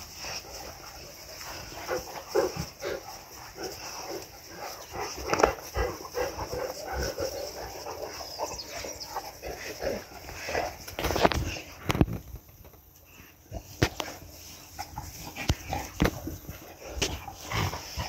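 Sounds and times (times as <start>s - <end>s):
dogs grunting and yapping: 0.0s - 18.0s.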